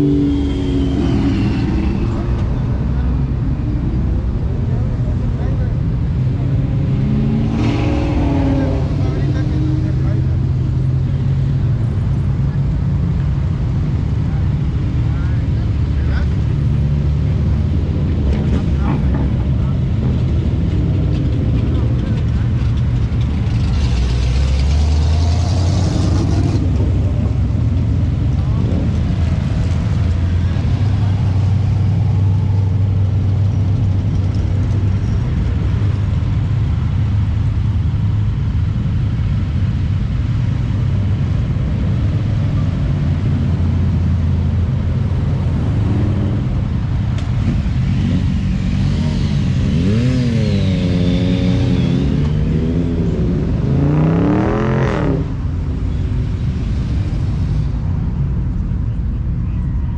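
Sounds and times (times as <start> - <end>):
car engines rumbling: 0.0 - 59.9
engine revving: 20.4 - 34.4, 45.2 - 55.5.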